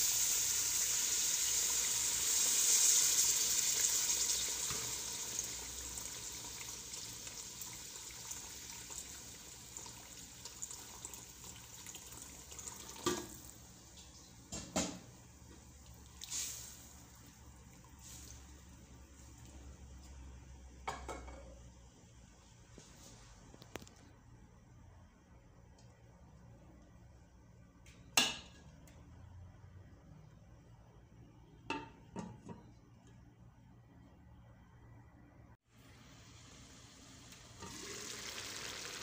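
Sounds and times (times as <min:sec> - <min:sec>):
water hissing in hot oil: 0:00.0 - 0:14.0, 0:16.0 - 0:18.6, 0:35.9 - 0:39.0
water pouring from a kettle: 0:37.2 - 0:39.0.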